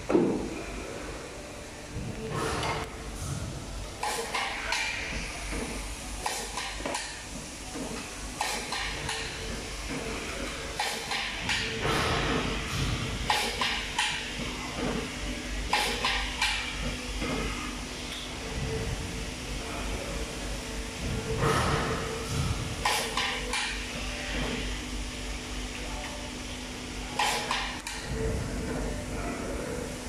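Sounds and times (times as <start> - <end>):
faint machine hum: 0.0 - 30.0.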